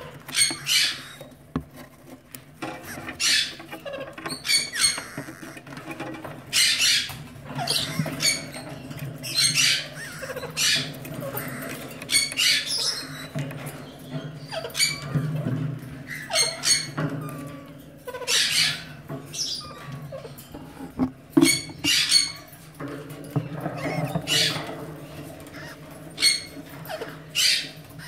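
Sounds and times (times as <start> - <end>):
parakeet raspy calls: 0.1 - 1.4, 2.6 - 5.8, 6.5 - 13.4, 23.8 - 28.0.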